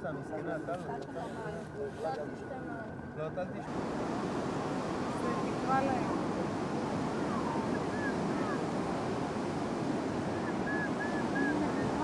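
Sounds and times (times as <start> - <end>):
distant voices: 1.0 - 12.0
fountain jets spraying: 3.6 - 12.0.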